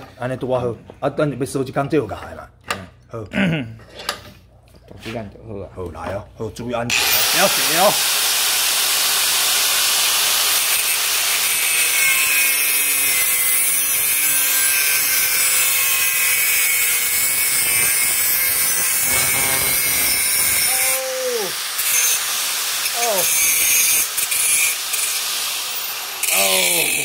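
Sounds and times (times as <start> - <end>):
angle grinder cutting metal: 6.9 - 27.0.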